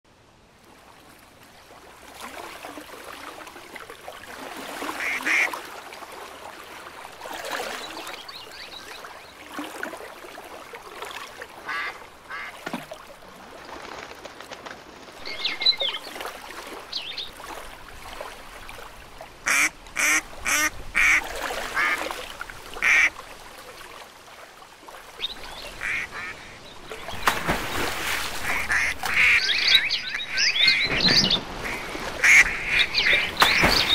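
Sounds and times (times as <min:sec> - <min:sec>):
ducks quacking: 0:05.0 - 0:05.5, 0:11.6 - 0:12.6, 0:19.4 - 0:21.2, 0:21.8 - 0:22.0, 0:22.8 - 0:23.1, 0:25.7 - 0:26.6, 0:28.4 - 0:33.9.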